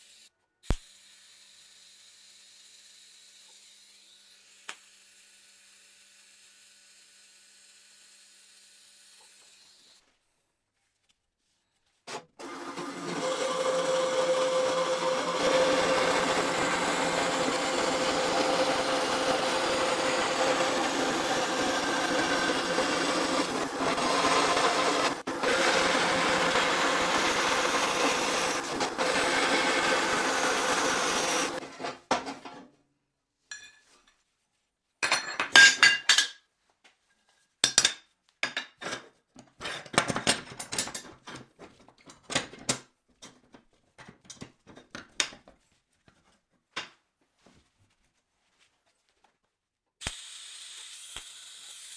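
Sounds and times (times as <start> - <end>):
bandsaw cutting metal: 12.1 - 32.3, 50.0 - 51.9.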